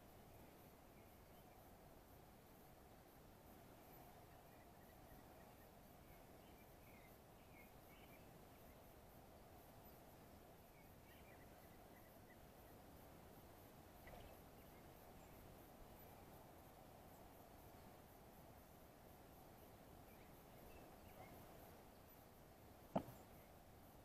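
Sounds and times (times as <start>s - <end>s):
faint outdoor ambience: 0.0s - 24.0s
soft knock: 22.9s - 23.2s.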